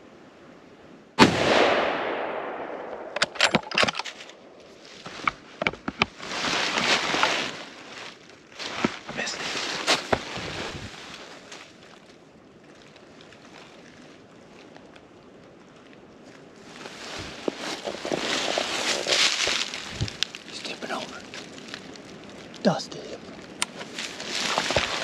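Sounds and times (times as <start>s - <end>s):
gunshot with rolling echo: 1.2s - 3.4s
rustling and handling: 3.2s - 12.1s, 16.2s - 25.0s.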